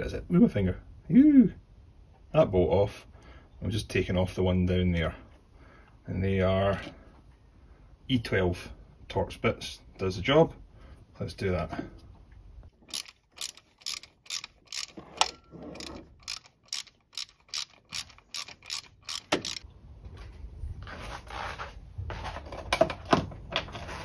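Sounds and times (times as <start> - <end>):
scraping and handling noise: 12.1 - 24.0
socket ratchet clicking: 12.9 - 19.6.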